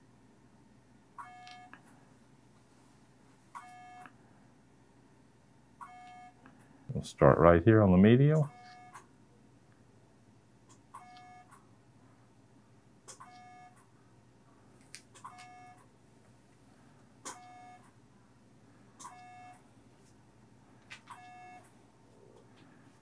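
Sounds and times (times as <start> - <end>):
device beep: 1.2 - 1.7, 3.6 - 4.1, 5.8 - 6.4, 8.4 - 9.0, 11.0 - 11.5, 13.2 - 13.8, 15.3 - 15.8, 17.3 - 17.9, 19.0 - 19.6, 21.2 - 21.6.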